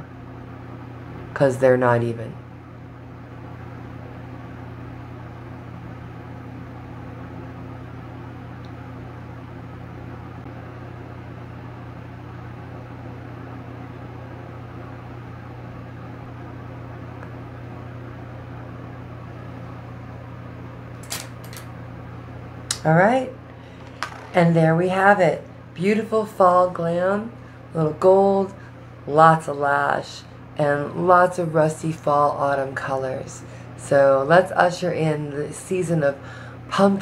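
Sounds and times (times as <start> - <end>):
appliance hum with light hiss: 0.0 - 37.0.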